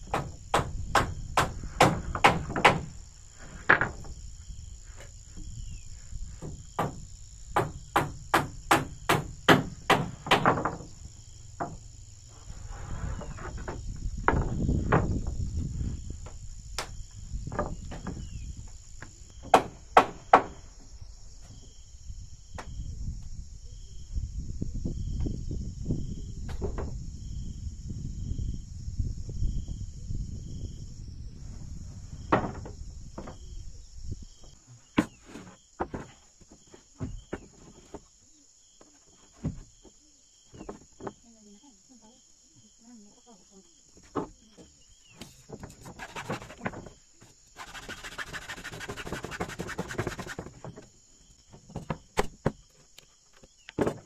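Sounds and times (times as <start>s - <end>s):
high insect drone: 0.0s - 54.0s
hammer on wooden floorboards: 0.1s - 2.9s, 6.4s - 10.8s, 19.4s - 20.6s.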